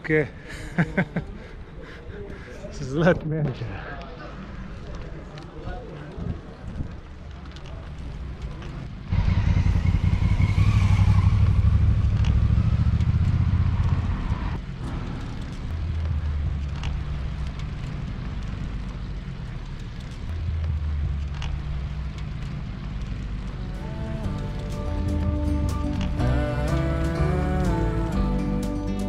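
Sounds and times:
wind buffeting microphone: 4.7 - 7.3
vehicle engine passing: 7.7 - 28.8.

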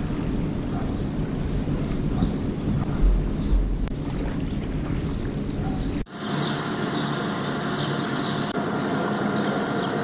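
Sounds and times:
wind rumbling on microphone: 0.0 - 6.1
distant engine hum: 0.0 - 10.0.

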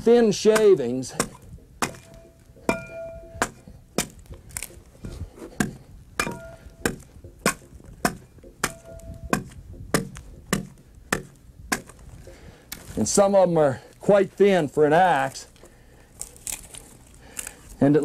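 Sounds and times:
axe chopping log: 0.4 - 4.8, 5.5 - 12.0.

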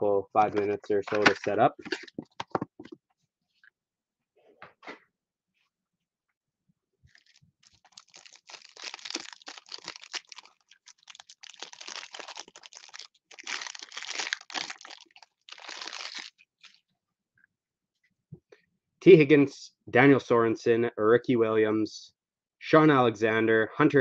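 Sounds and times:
plastic wrapper crinkling and tearing: 7.1 - 16.8.

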